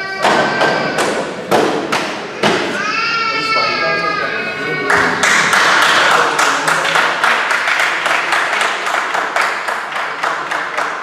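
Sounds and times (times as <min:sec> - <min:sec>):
spectators applauding: 0:04.8 - 0:11.0.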